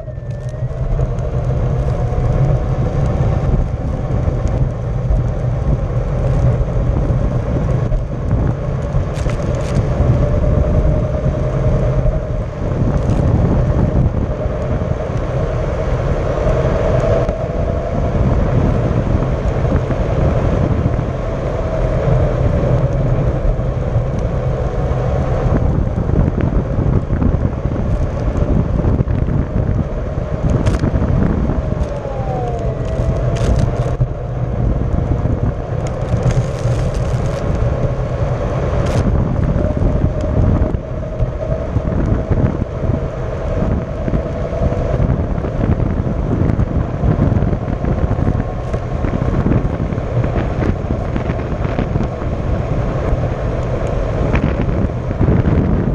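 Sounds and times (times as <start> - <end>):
wind noise on microphone: 0.0 - 55.9
tyre rumble on asphalt: 25.6 - 40.6
electric motor whine: 30.4 - 34.1.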